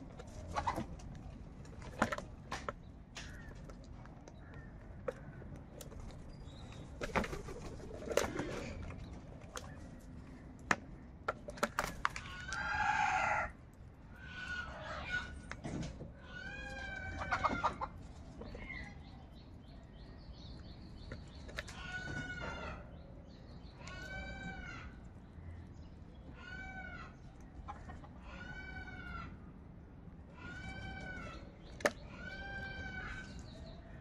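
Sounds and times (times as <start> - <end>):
crows cawing: 3.2 - 3.7, 4.4 - 4.8, 12.2 - 13.6, 32.0 - 33.4.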